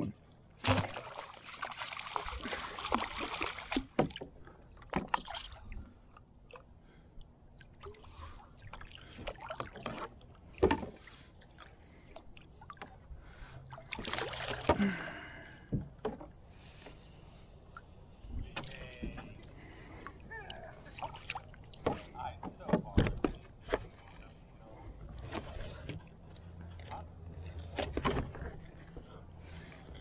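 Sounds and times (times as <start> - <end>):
fish splashing in water: 0.6 - 4.0.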